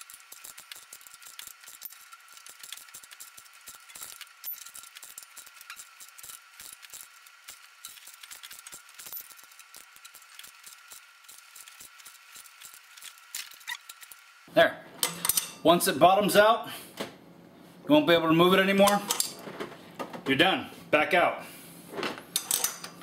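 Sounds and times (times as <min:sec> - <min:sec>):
ratcheting wrench clicking: 0:00.0 - 0:14.2, 0:22.4 - 0:23.0.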